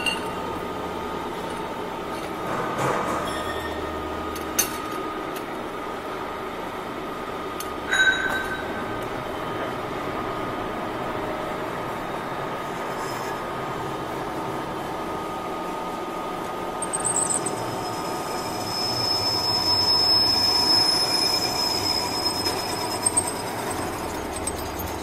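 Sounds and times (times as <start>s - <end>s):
metal lathe whine: 7.3s - 25.0s.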